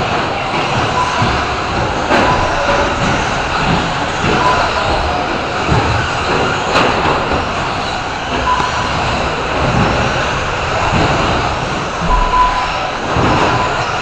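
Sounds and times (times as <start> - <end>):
short beep: 12.0 - 12.9.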